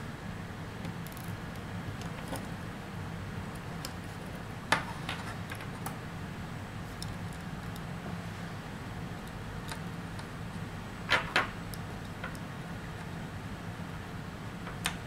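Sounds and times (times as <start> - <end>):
steady low hum: 0.0 - 15.0
small parts clicking and tapping: 9.2 - 12.5.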